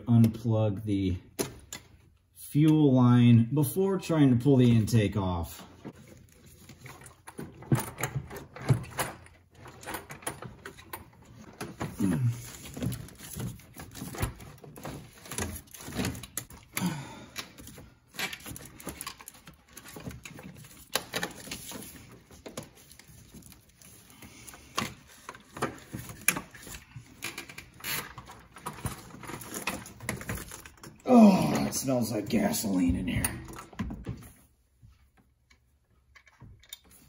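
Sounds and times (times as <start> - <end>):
hand tools and engine parts rattling: 5.5 - 34.0.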